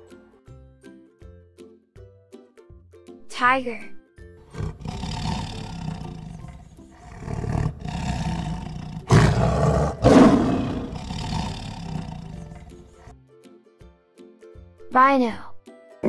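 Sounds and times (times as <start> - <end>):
tiger roaring: 4.5 - 13.1.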